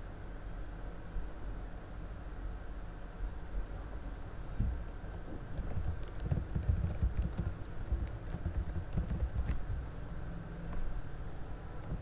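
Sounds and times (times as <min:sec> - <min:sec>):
low steady hum: 0:00.0 - 0:12.0
soft irregular thumps: 0:04.6 - 0:09.8.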